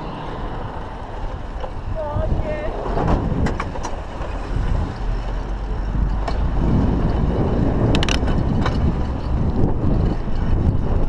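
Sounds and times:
bike tyre rumble on tarmac: 0.0 - 11.0
wind on camera microphone: 0.0 - 11.0
sharp clicks and rattles: 5.3 - 10.8.

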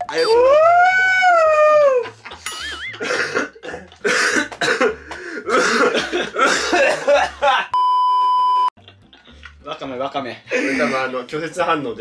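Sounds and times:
man coughing and gagging: 2.5 - 7.7.

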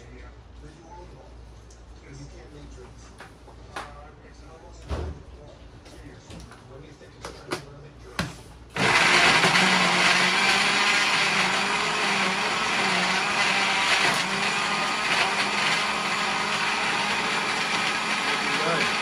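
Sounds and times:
blender motor churning: 8.8 - 19.0.

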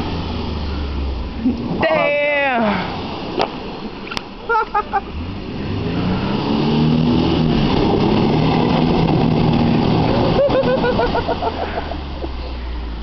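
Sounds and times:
wheels spinning in mud: 4.9 - 12.6
engine revving hard: 5.0 - 11.9.

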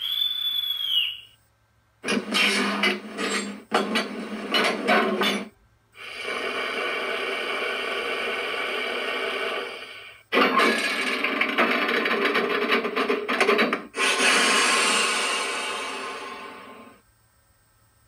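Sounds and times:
rasping mechanical noise: 2.0 - 17.0
steady even noise: 14.0 - 17.0.

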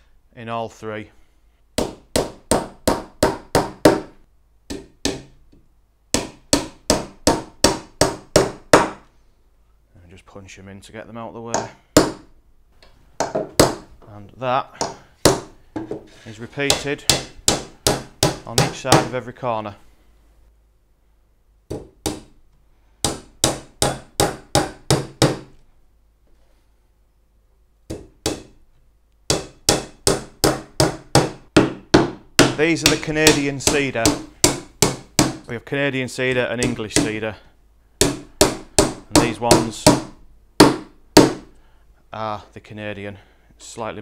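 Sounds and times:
hammer driving nails into wood: 1.8 - 5.4, 6.1 - 9.0, 11.6 - 12.3, 14.8 - 16.0, 16.7 - 19.1, 21.7 - 22.3, 23.0 - 25.6, 27.9 - 28.6, 29.3 - 35.5, 38.0 - 41.5.

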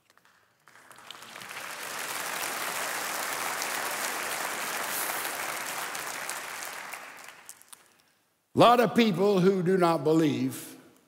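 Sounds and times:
congregation applauding: 0.0 - 8.0.

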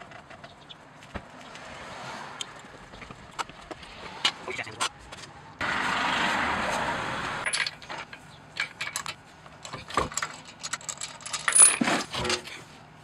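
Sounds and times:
lug nuts clicking and clinking: 7.4 - 12.6.

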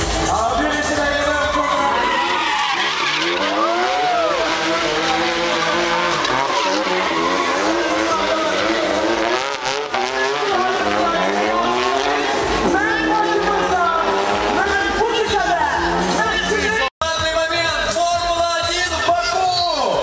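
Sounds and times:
tyres squealing: 0.6 - 16.6
car engine revving hard: 0.9 - 16.9.

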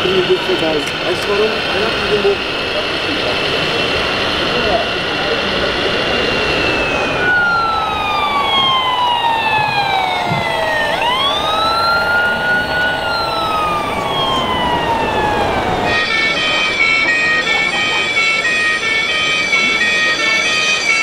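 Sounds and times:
toy fire truck wail siren: 4.6 - 21.0.

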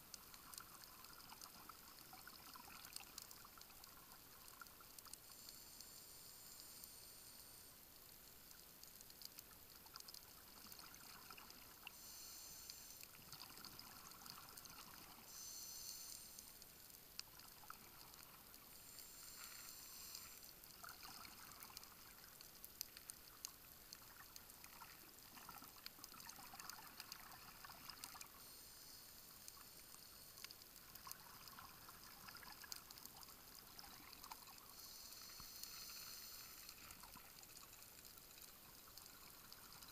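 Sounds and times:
faint clicks: 0.0 - 39.9
underwater exhaled bubbles: 0.2 - 5.1, 9.8 - 12.4, 13.0 - 15.6, 17.2 - 28.6, 30.5 - 39.9.

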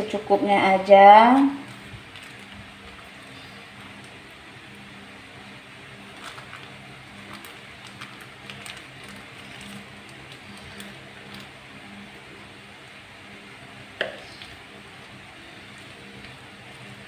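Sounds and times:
steady low hum: 0.0 - 17.0
plastic bag crinkling: 1.3 - 4.2, 6.1 - 11.5.

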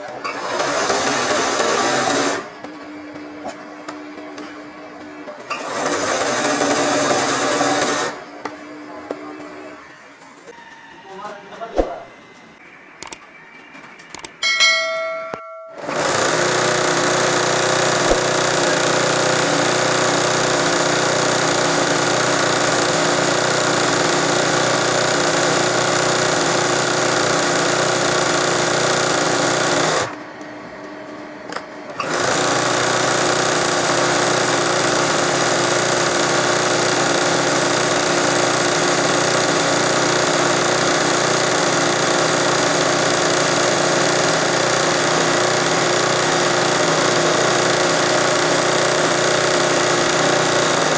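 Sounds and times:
sewing machine running: 0.0 - 2.9, 5.0 - 8.3, 15.8 - 30.2, 32.0 - 50.9.

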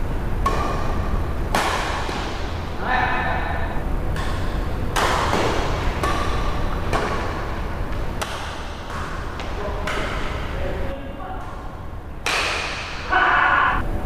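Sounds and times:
rackets hitting shuttlecock: 0.4 - 2.6, 4.1 - 10.6, 11.4 - 13.1.

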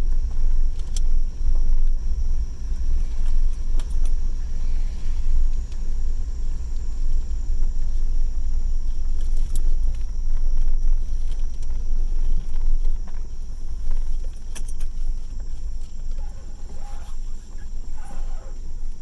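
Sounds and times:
engine and tyre rumble: 0.0 - 19.0
faint high whine: 0.0 - 19.0
small clicks and rattles: 8.8 - 19.0.

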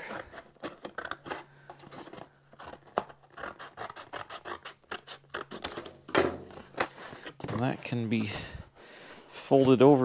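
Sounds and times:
cardboard rustling: 0.0 - 4.2
scissors snipping cardboard: 2.6 - 5.8.

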